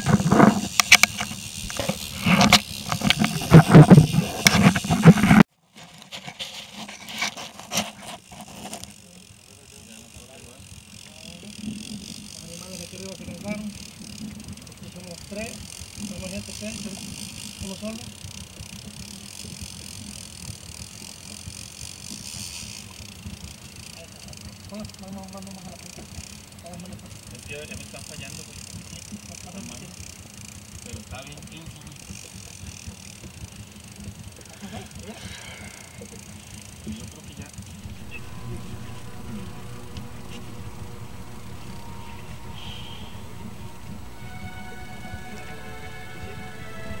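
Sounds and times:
boat moving on water: 0.0 - 5.5, 7.8 - 47.0
handheld camera knocks and bumps: 0.0 - 8.8.

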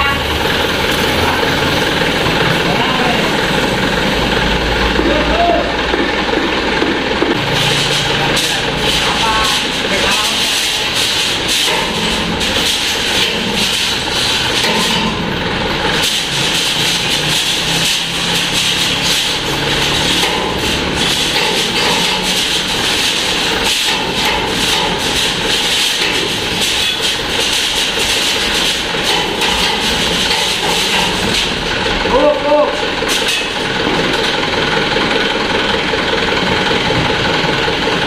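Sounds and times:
diesel truck engine idling: 0.0 - 38.0
irregular clicks and knocks: 15.9 - 31.9.

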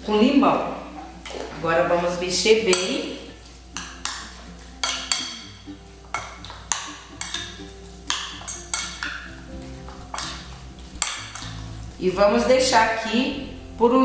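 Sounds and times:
quiet background music: 0.0 - 14.0
metal spoon clinking on glass bowl: 3.8 - 5.5, 6.1 - 9.3.

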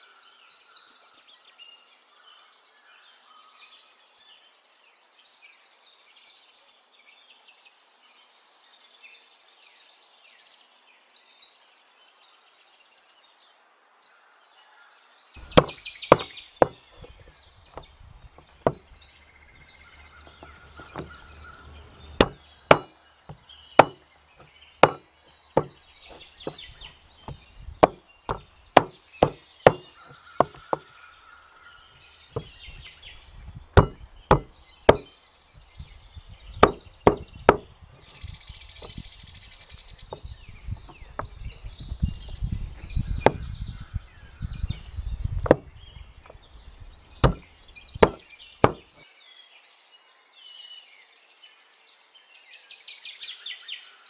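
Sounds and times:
cleaver chopping on wooden board: 15.4 - 17.9, 18.7 - 18.9, 20.0 - 24.0, 24.8 - 25.0, 25.6 - 30.9, 32.4 - 32.9, 33.8 - 35.1, 36.6 - 38.2, 40.2 - 41.5, 42.3 - 43.5, 45.4 - 46.4, 47.2 - 49.0
birds chirping: 15.4 - 49.0.

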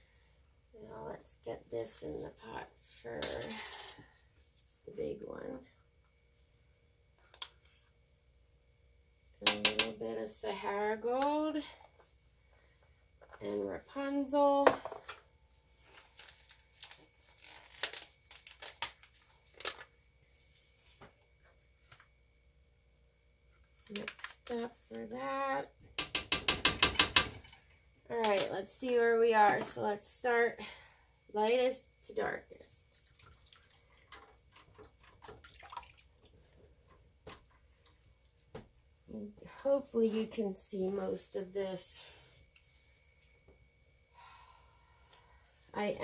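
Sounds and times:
small clicks of mixing cups: 7.2 - 7.8, 9.5 - 10.0, 23.8 - 24.7, 33.4 - 38.9
faint drips: 32.9 - 36.6.

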